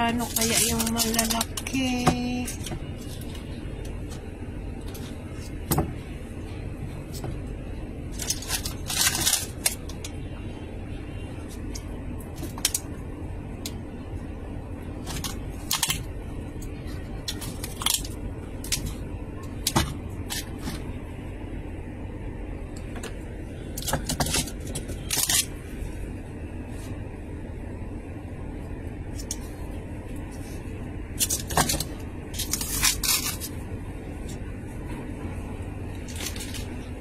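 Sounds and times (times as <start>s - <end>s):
low hum: 0.0s - 37.0s
plastic packs crinkling: 0.1s - 3.3s, 8.2s - 10.0s.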